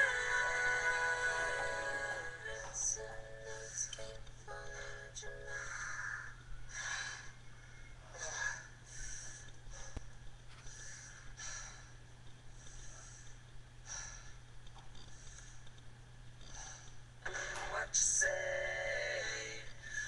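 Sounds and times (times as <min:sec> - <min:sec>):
low electrical hum: 0:00.0 - 0:20.0
person breathing heavily: 0:04.7 - 0:14.5, 0:16.5 - 0:17.8, 0:19.8 - 0:20.0.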